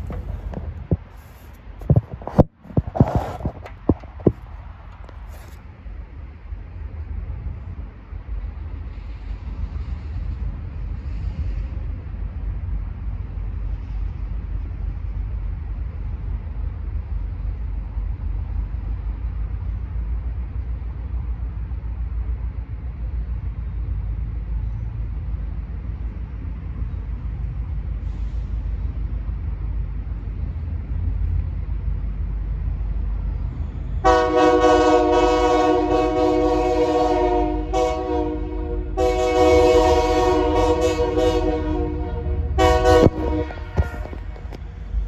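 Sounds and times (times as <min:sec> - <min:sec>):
locomotive air horn blasts: 0:34.0 - 0:44.6.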